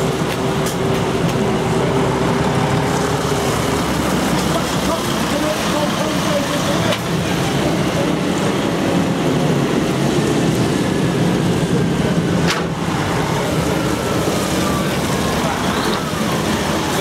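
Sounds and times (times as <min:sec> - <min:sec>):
truck diesel engines passing: 0:00.0 - 0:17.0.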